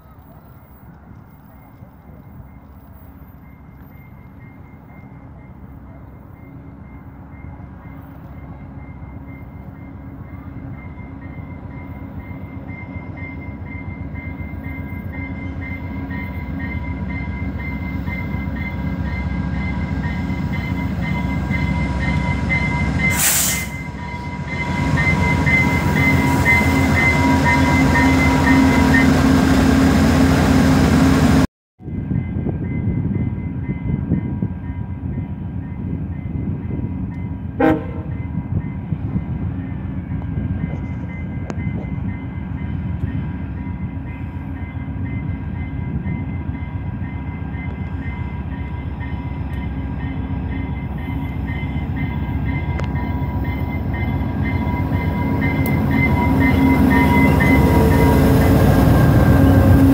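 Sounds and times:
diesel train passing: 0.0s - 59.9s
brief hiss: 23.2s - 23.8s.

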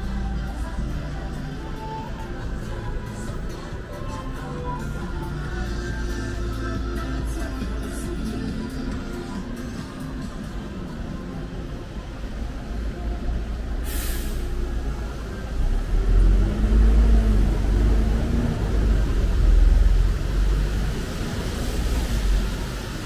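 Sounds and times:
heavy vehicle rumbling past: 0.0s - 23.0s
traffic on wet road: 0.0s - 23.0s
air brake hiss: 13.8s - 14.7s.

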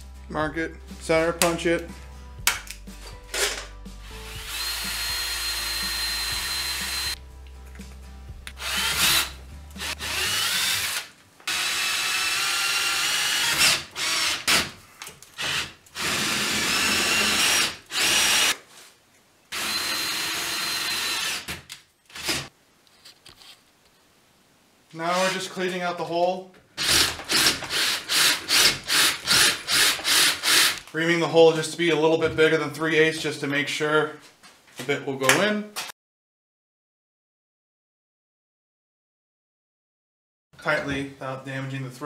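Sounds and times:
power drill boring through metal: 3.4s - 7.2s, 8.6s - 14.7s, 15.4s - 18.6s, 19.5s - 22.5s, 26.8s - 30.8s.

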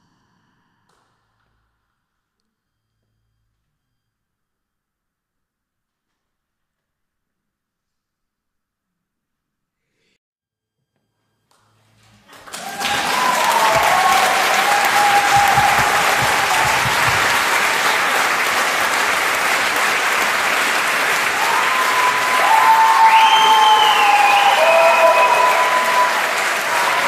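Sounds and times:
audience applauding: 12.0s - 27.0s
people cheering: 12.3s - 27.0s.

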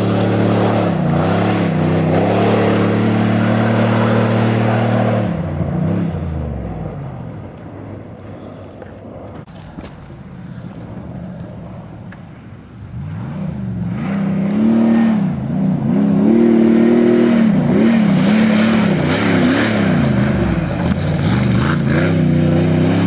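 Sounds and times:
off-road car engine revving: 0.0s - 7.2s, 12.9s - 23.0s.

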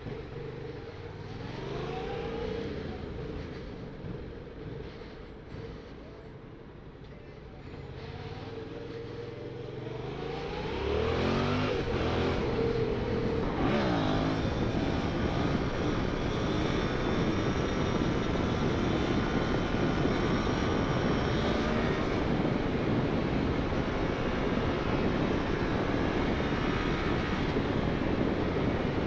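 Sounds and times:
motorcycle engine revving: 9.5s - 23.8s
wind rush over microphone: 10.0s - 29.0s.

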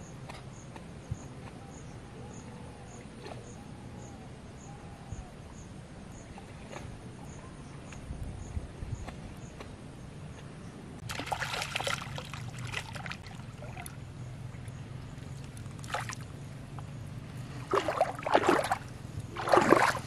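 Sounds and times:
fish splashing in water: 11.0s - 16.4s, 17.5s - 20.0s.

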